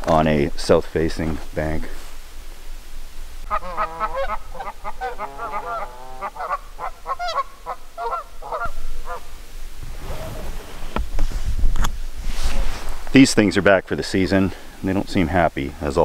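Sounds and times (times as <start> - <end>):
geese honking: 3.4 - 9.4.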